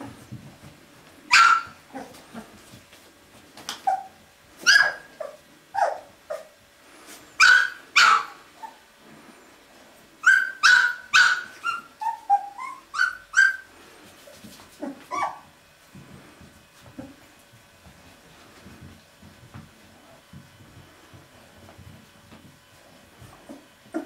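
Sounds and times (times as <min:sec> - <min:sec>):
puppies yipping and barking: 0:01.3 - 0:02.6, 0:03.8 - 0:06.6, 0:07.4 - 0:08.8, 0:10.2 - 0:13.7, 0:14.8 - 0:15.5.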